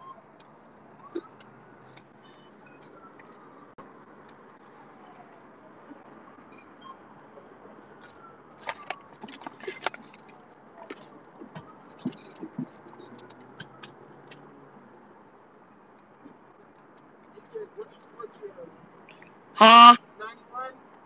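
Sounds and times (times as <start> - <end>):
faint background noise: 0.0 - 21.0
paper rustling: 7.9 - 13.0.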